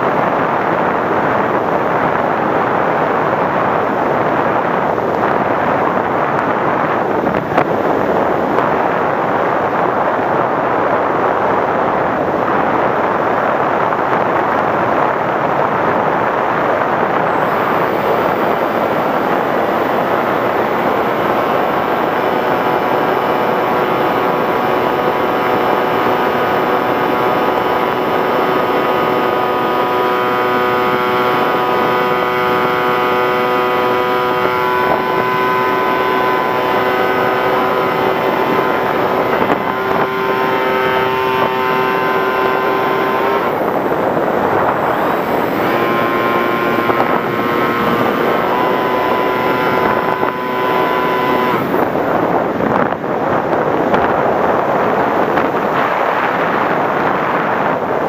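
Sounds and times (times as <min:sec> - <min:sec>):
wind rushing over microphone: 0:00.0 - 0:58.0
model plane motor whine: 0:17.0 - 0:52.9.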